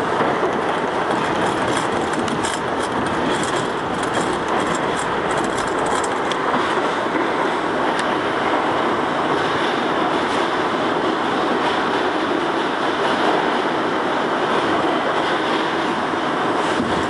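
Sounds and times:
rumble of train wheels on rail: 0:00.0 - 0:17.0
sharp high clicks from wheels: 0:01.1 - 0:06.4.

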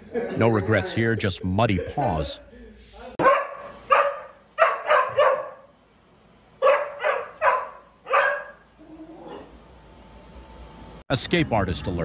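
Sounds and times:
dog barking sharply: 0:03.2 - 0:05.7, 0:06.6 - 0:08.6.

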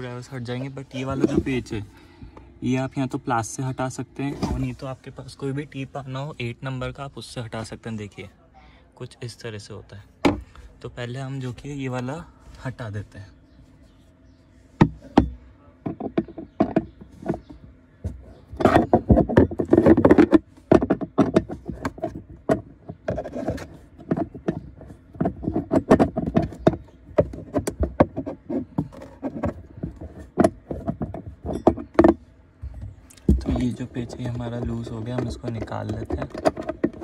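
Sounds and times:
tool knocking on hard plastic: 0:14.8 - 0:37.0.

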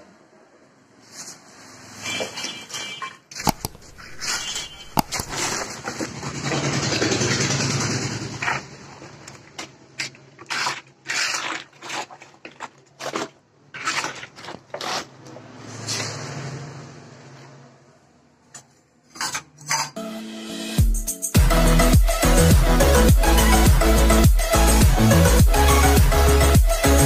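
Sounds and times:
spatula scraping metal pan: 0:19.1 - 0:20.0.

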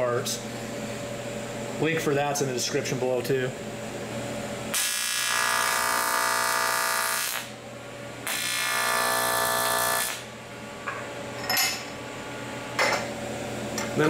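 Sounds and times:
welding arc buzzing: 0:04.6 - 0:07.6, 0:08.2 - 0:10.3.

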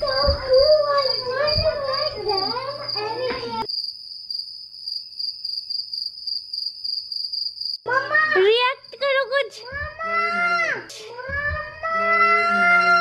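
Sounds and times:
high-pitched voice: 0:00.0 - 0:03.7, 0:07.9 - 0:13.0
crickets chirping: 0:00.0 - 0:10.0.

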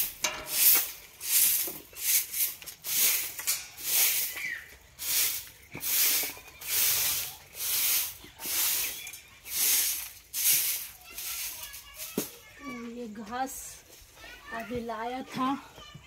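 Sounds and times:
broom sweeping earthen floor: 0:00.0 - 0:12.8.

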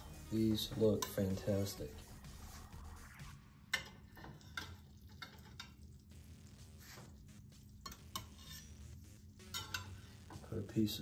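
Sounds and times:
metal utensils clinking on dishes: 0:00.8 - 0:01.7, 0:03.7 - 0:06.0, 0:07.8 - 0:08.8, 0:09.4 - 0:10.5.

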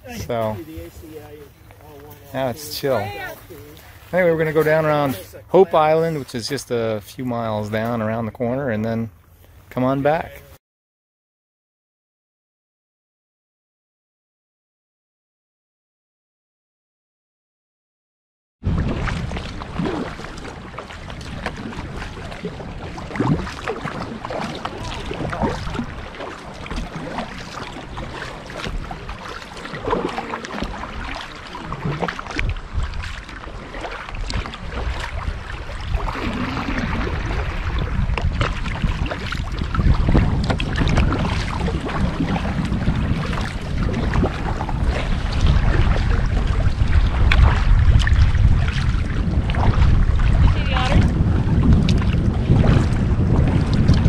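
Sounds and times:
wind buffeting microphone: 0:00.0 - 0:06.9, 0:18.6 - 0:54.0
paddle splashes: 0:00.0 - 0:08.0, 0:18.6 - 0:54.0
water lapping at hull: 0:00.0 - 0:10.6, 0:18.6 - 0:54.0.

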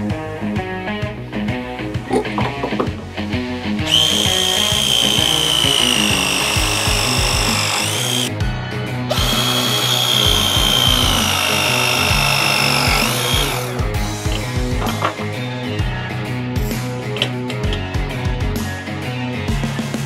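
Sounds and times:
press tool motor whine: 0:03.9 - 0:08.3, 0:09.1 - 0:13.8
background music with beat: 0:13.6 - 0:20.0.

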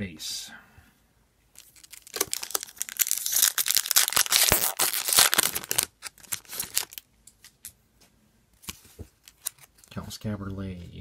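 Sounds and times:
foil wrapper crinkling: 0:01.6 - 0:07.1.

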